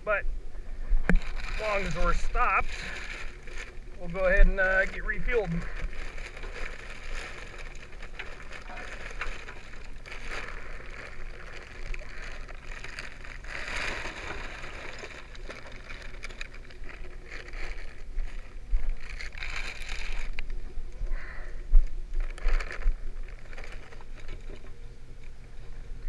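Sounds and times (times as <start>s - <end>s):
sack rustling: 1.1s - 20.6s, 22.1s - 24.7s
wood chunks rattling into hopper: 1.2s - 18.0s.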